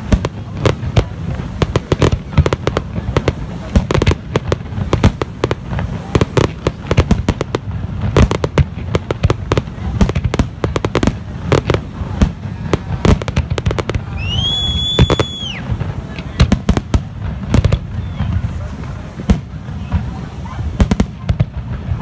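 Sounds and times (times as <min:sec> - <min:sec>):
continuous low rumble: 0:00.0 - 0:22.0
high firework whistle: 0:14.0 - 0:15.8, 0:17.7 - 0:18.6.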